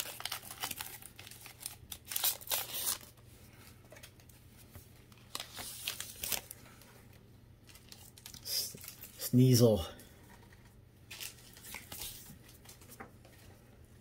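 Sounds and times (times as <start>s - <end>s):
foil wrapper crinkling: 0.0s - 3.2s, 5.1s - 6.9s, 7.6s - 9.4s
cards being handled: 10.3s - 13.5s.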